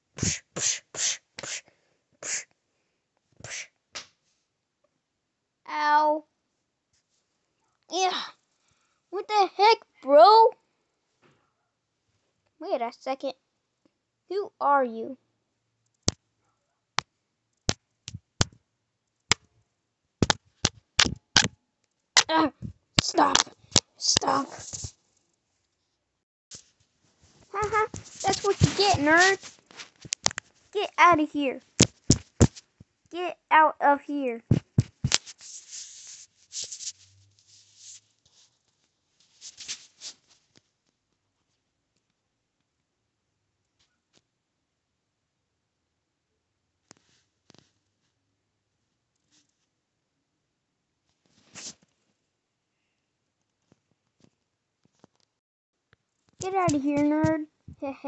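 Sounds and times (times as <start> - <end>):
sharp handling knocks: 20.2 - 21.6, 31.8 - 32.6, 34.5 - 35.2.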